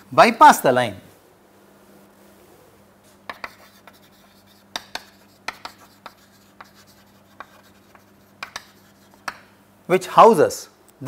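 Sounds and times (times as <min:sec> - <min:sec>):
chalk tapping and scraping on blackboard: 0:03.2 - 0:09.6.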